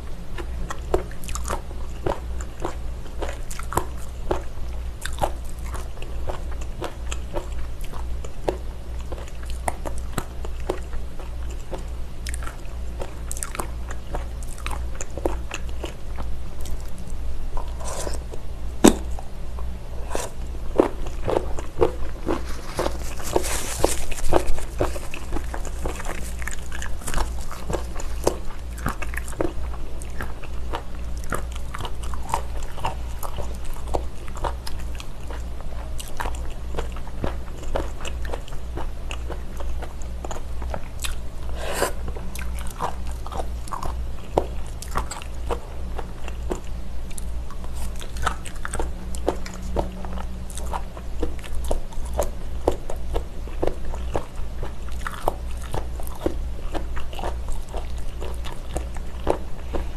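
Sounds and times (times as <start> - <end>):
chewing crunchy seaweed: 0.0 - 59.9
steady low hum: 0.0 - 59.9.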